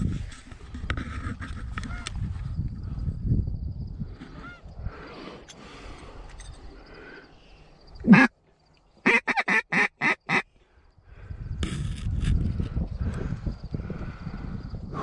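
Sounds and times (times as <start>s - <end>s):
duck quacking: 8.0s - 8.3s, 9.0s - 10.4s.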